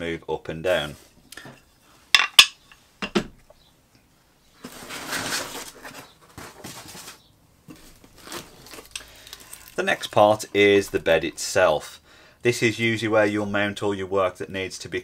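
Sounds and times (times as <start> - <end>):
foam packing sheet rustling: 4.6 - 10.4.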